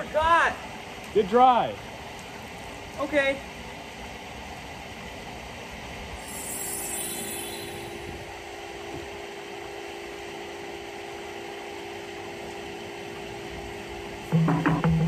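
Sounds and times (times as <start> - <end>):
high hiss: 6.2 - 8.4
low hum: 6.2 - 9.0.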